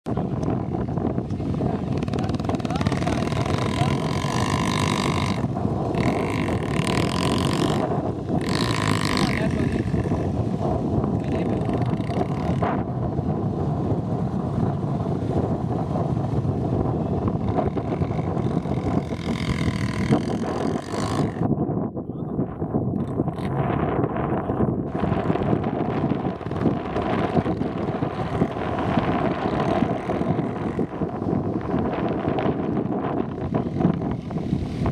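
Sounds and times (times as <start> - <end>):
dirt bike engine revving: 1.6 - 12.9, 17.2 - 21.5, 24.9 - 34.4.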